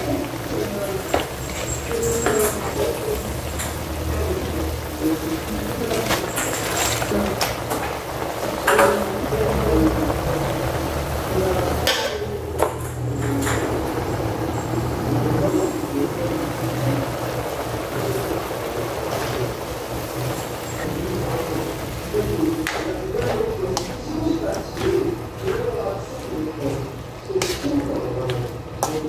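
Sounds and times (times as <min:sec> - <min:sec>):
food sizzling in a wok: 0:00.0 - 0:12.8, 0:13.6 - 0:29.0.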